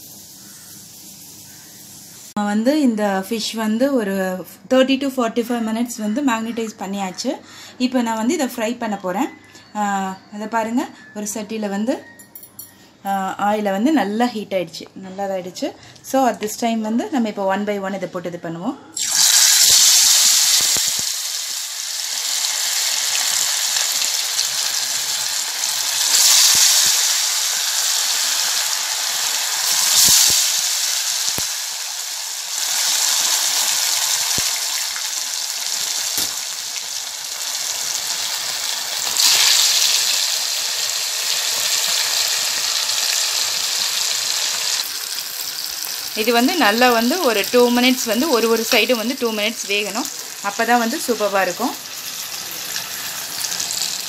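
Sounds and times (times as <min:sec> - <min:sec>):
fish deep-frying in hot oil: 0:00.0 - 0:02.4, 0:19.0 - 0:54.0.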